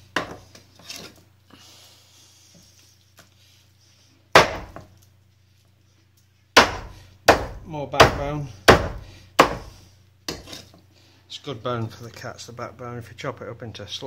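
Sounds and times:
soft handling of meat: 0.6s - 4.3s
cleaver chopping on wooden block: 4.4s - 4.8s, 6.6s - 9.7s.

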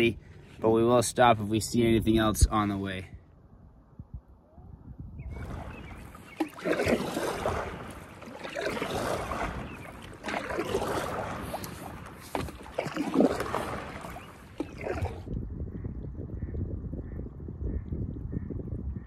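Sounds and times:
paddle strokes splashing in water: 5.3s - 15.3s.

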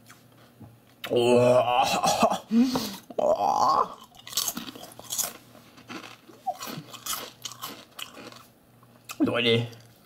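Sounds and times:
potato chip crunching: 3.9s - 10.0s.

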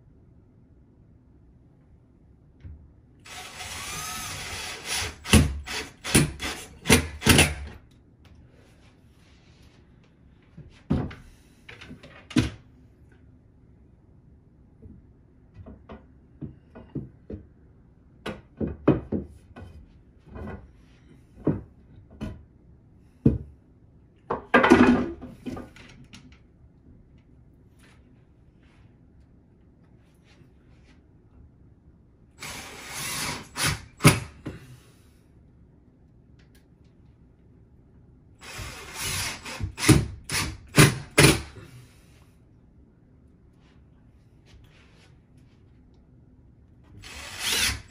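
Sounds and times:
cordless drill driving screw: 3.3s - 6.7s, 32.4s - 34.3s, 38.4s - 41.4s, 47.0s - 47.9s.

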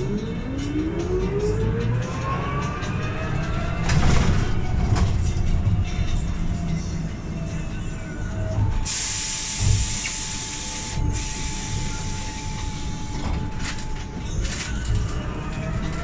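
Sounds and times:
trolleybus running rumble: 0.0s - 16.0s
loud steady hiss: 8.9s - 12.9s.

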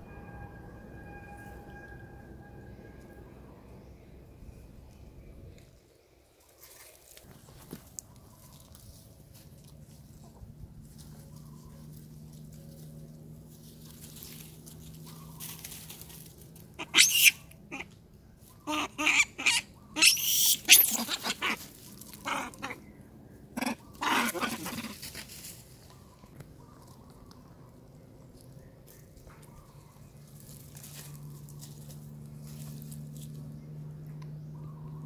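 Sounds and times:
macaque screaming: 16.8s - 18.0s, 18.6s - 22.8s, 23.6s - 25.0s.

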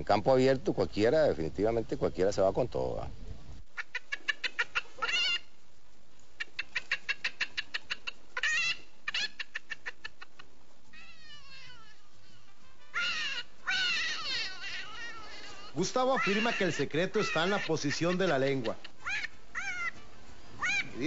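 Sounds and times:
man imitating animal calls: 13.0s - 20.0s, 20.6s - 21.0s.

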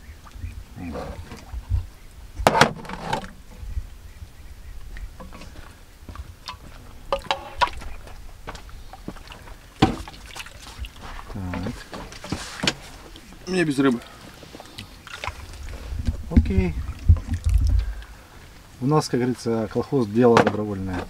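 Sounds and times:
ladle clinking and scraping pot: 7.1s - 7.8s.

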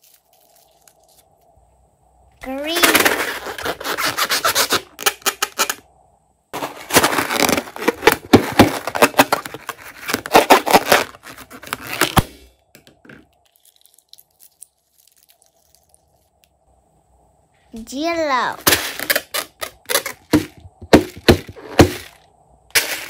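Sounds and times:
slime balloon crackling and rubbing: 0.0s - 1.3s, 2.8s - 5.0s, 6.6s - 12.2s.

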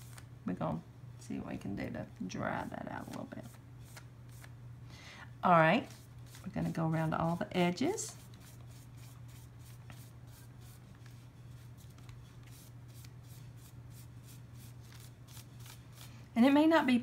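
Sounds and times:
low steady hum: 0.0s - 17.0s
brush stroking on thin paper: 5.8s - 7.4s, 8.0s - 16.1s.

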